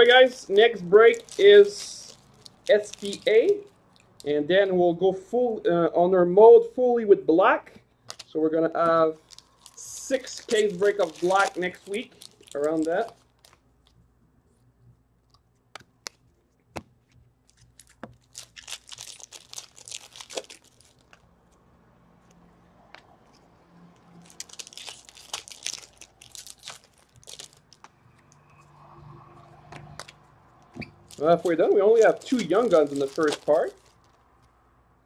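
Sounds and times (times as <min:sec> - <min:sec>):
foil wrappers tearing and crinkling: 0:00.0 - 0:04.1, 0:09.2 - 0:13.6, 0:17.4 - 0:21.2, 0:24.1 - 0:27.9, 0:31.0 - 0:34.2
cards being handled: 0:00.0 - 0:04.2, 0:08.0 - 0:14.0, 0:15.2 - 0:21.6, 0:29.7 - 0:34.6.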